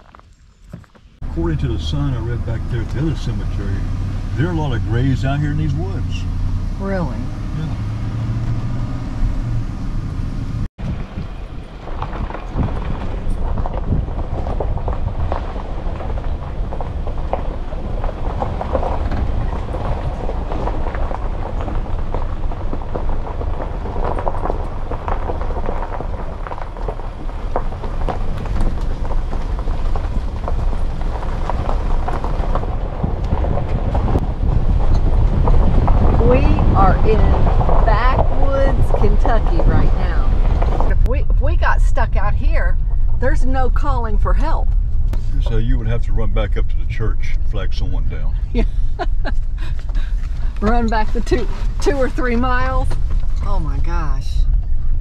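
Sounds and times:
tyres crunching on gravel: 0.0 - 6.7, 10.3 - 41.1
vehicle rumbling: 0.0 - 55.0.

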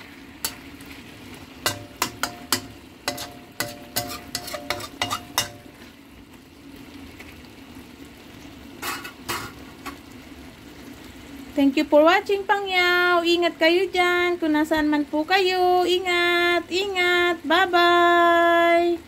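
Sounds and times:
food sizzling in a wok: 0.0 - 19.0
wok ringing: 0.4 - 0.8, 1.6 - 5.8, 8.8 - 10.0
metal spatula scraping a wok: 0.4 - 5.9, 8.8 - 10.0.

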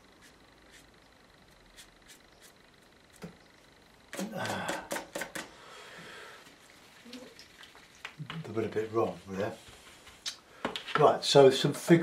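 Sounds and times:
soft rustle: 8.8 - 10.2.

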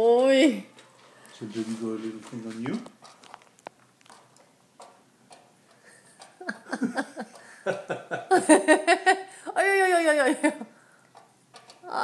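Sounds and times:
paint pots and brush tapping: 0.0 - 8.0, 11.1 - 12.0.

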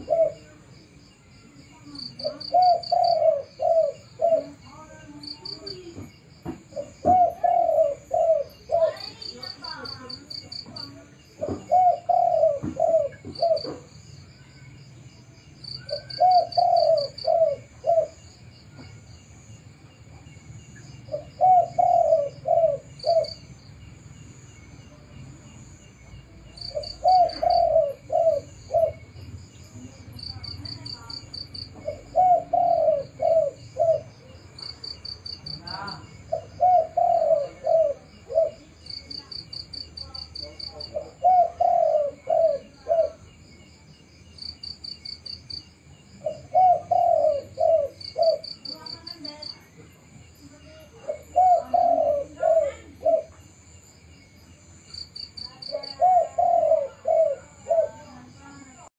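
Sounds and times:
dove cooing: 0.0 - 0.8, 1.8 - 6.0, 6.6 - 13.9, 15.6 - 18.9, 21.1 - 23.5, 26.5 - 43.3, 46.1 - 49.8, 50.5 - 53.5, 55.1 - 58.8
insects chirping: 0.0 - 58.9.

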